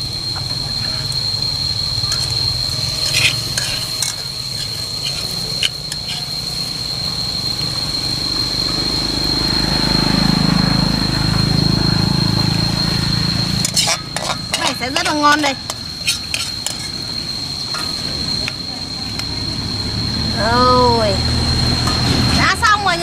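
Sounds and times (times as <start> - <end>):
high-pitched whine: 0.0 - 23.0
food frying in fat: 0.6 - 7.9, 13.3 - 19.6
metal utensil clinking on pan: 13.6 - 17.0.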